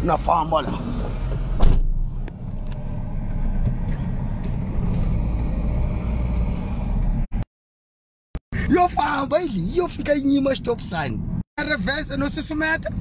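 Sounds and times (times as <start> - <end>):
vehicle engine rumble from inside: 0.0 - 7.4
road noise: 0.0 - 7.5, 8.4 - 13.0.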